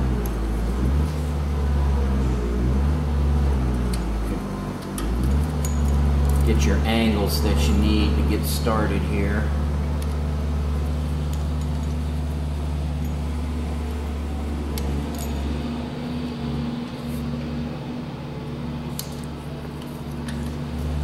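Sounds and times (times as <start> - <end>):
construction machinery drone: 0.0 - 21.0.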